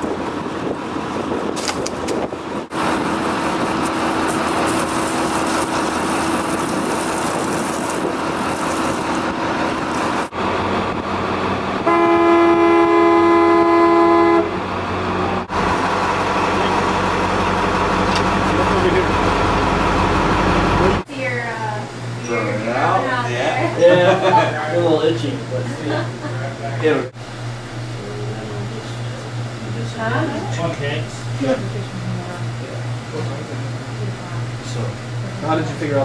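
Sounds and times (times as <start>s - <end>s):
wind on microphone: 0.0s - 11.1s
boat under way rushing: 0.0s - 36.0s
horn blast: 11.8s - 14.6s.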